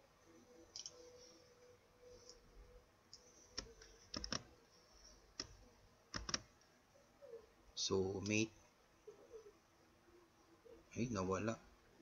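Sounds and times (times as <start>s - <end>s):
computer mouse clicks: 0.7s - 1.0s, 3.1s - 4.5s, 5.4s - 6.5s.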